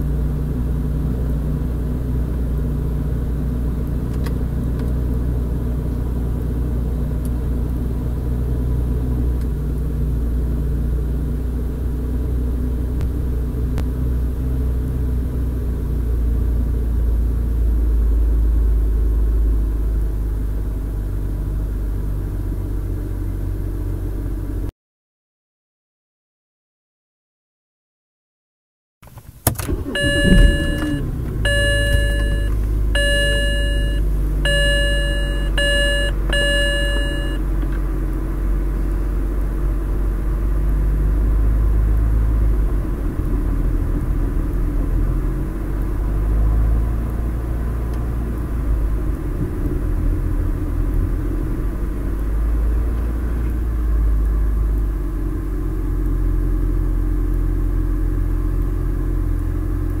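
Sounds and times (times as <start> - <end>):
car engine idling: 29.4 - 60.0
dashboard warning chime: 29.7 - 37.4.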